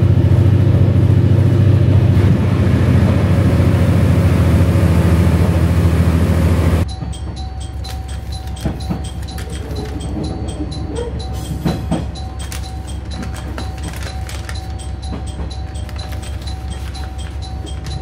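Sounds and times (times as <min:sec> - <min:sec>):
constant whine: 0:00.0 - 0:18.0
diesel engine rumble: 0:00.0 - 0:18.0
wheels clicking over rail joints: 0:06.8 - 0:18.0.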